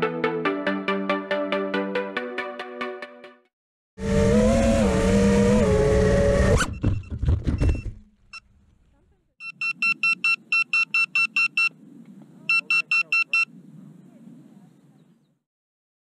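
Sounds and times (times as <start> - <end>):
quadcopter motors whining: 4.0 - 6.7
rapid high beeping: 9.4 - 11.7.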